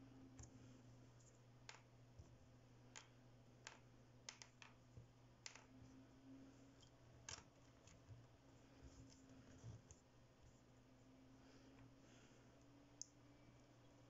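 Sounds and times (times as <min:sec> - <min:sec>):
plastic beads clicking together: 0:02.9 - 0:04.8, 0:05.4 - 0:05.7.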